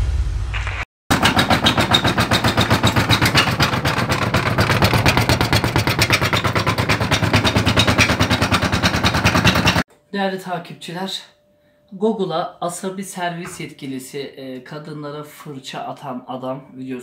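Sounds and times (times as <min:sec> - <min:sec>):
washing machine drum knocking: 0:01.1 - 0:09.8
washing machine motor hum: 0:01.1 - 0:09.8.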